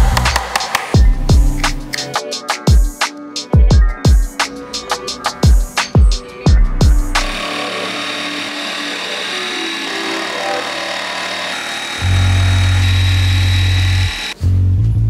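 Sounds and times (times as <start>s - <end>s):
deep bass background music: 0.0s - 2.2s, 5.4s - 7.5s, 12.0s - 15.0s
scroll saw cutting wood: 7.1s - 14.4s.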